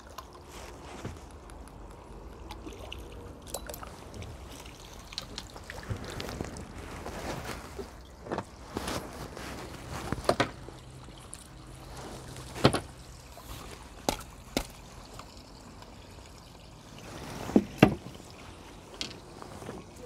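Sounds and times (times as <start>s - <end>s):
water dripping from net: 1.2s - 6.3s, 10.6s - 19.5s.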